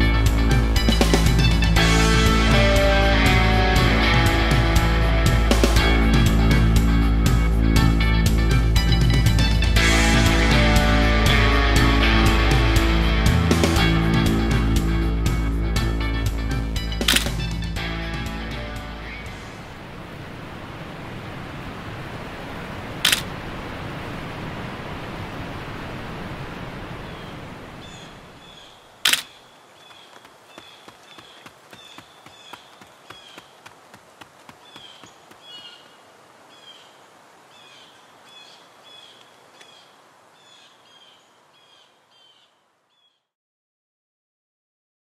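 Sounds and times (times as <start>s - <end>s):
camera shutter clicks: 17.0s - 17.4s, 23.0s - 23.3s, 29.1s - 29.4s
river rapids rushing: 24.9s - 39.2s
bird chirping: 27.1s - 33.8s, 34.4s - 43.3s.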